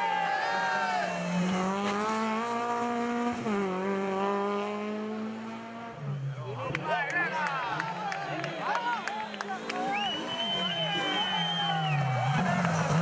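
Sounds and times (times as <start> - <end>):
rally car engine revving hard: 1.0 - 6.0, 9.6 - 13.0.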